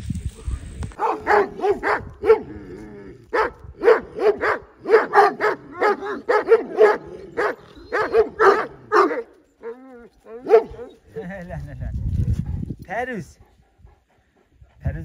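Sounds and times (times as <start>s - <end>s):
dog barking: 1.0s - 2.5s, 3.3s - 9.3s, 10.4s - 10.9s.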